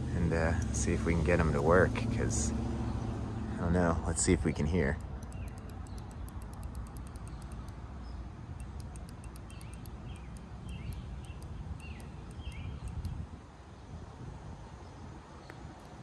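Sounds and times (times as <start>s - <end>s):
bird chirps: 4.4s - 13.2s
faint high ticking: 4.9s - 7.8s, 8.6s - 13.2s.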